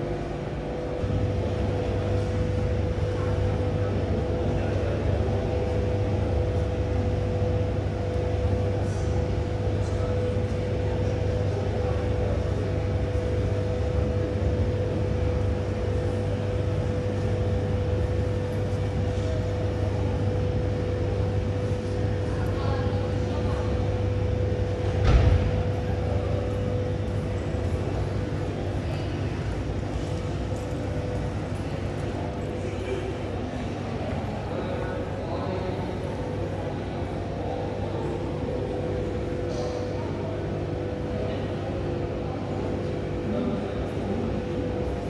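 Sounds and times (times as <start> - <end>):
low mechanical drone: 0.0 - 45.0.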